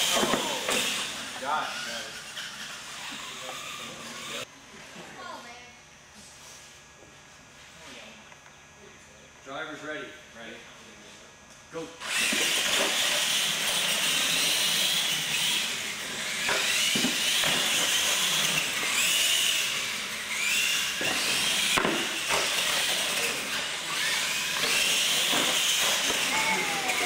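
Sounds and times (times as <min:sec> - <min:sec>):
toy truck motor whine: 0:00.0 - 0:04.5, 0:12.0 - 0:27.0.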